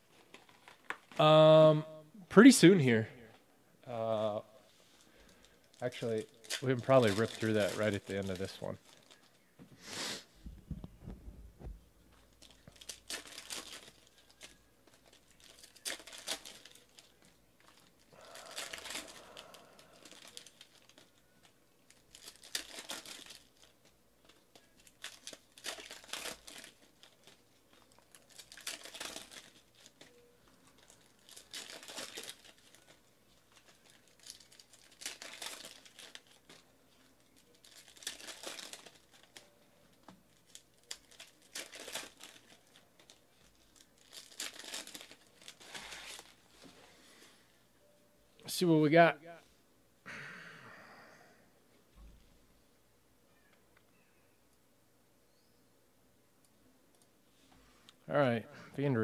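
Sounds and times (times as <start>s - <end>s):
plastic wrappers tearing and crinkling: 0.2s - 1.3s, 5.0s - 9.5s, 12.2s - 47.2s.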